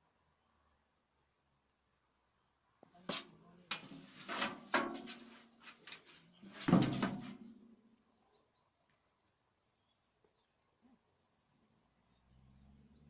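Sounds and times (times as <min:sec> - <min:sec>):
cat knocking on metal tray: 0:06.6 - 0:07.3.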